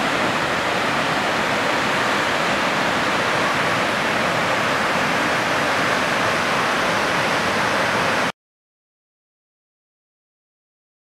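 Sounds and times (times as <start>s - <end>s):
waterfall rushing: 0.0s - 8.3s.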